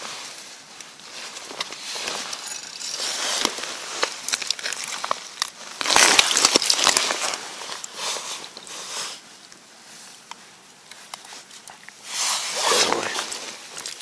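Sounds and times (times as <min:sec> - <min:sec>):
ice and slush crunching: 0:01.1 - 0:08.5, 0:12.4 - 0:14.0.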